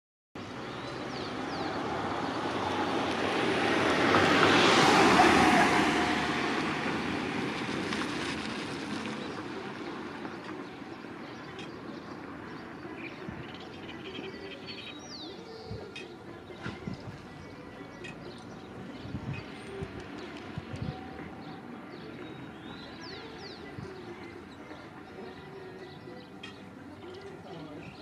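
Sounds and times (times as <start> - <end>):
passing vehicle rushing: 0.6 - 10.3.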